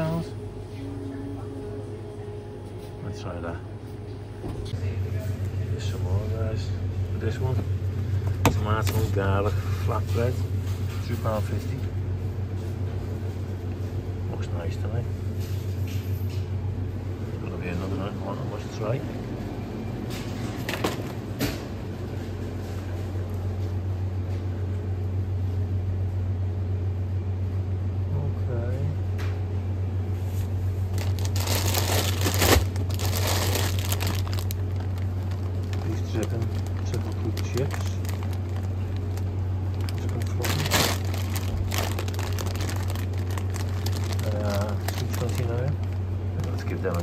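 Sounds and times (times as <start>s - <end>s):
freezer refrigeration hum: 0.0s - 47.0s
plastic bag crinkling: 30.9s - 47.0s.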